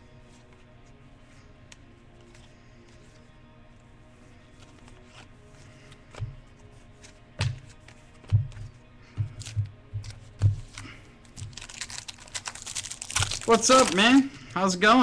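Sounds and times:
cards tapping on tabletop: 0:07.4 - 0:10.8.

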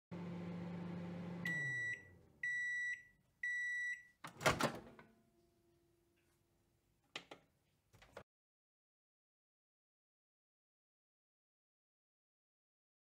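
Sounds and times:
microwave running hum: 0:00.1 - 0:03.9
microwave long beeps: 0:00.4 - 0:04.2.

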